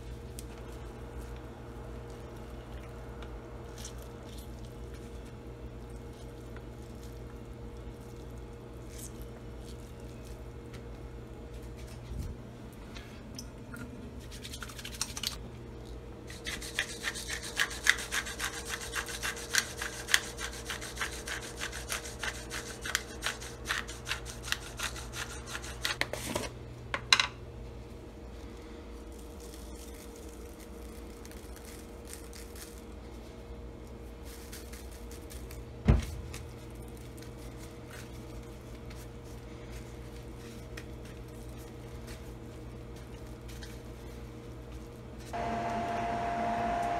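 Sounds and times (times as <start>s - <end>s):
low steady hum: 0.0s - 46.9s
thump: 35.9s - 36.3s.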